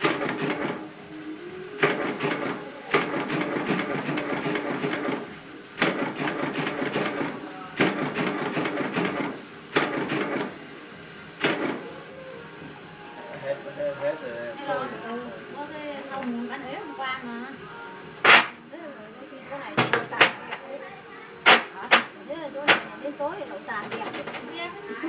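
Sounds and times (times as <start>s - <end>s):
machine clattering: 0.0s - 0.8s, 1.8s - 10.5s.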